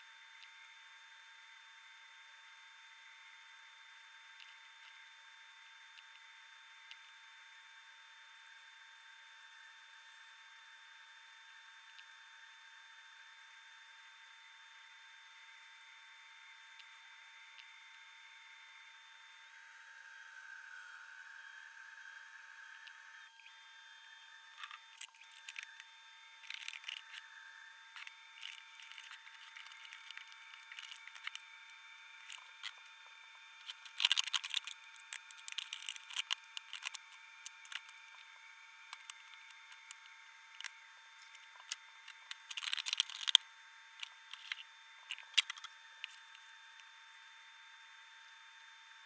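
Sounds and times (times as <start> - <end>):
insect chewing crunching clicks: 24.6 - 27.2, 28.0 - 31.4, 33.6 - 38.2, 38.9 - 43.4.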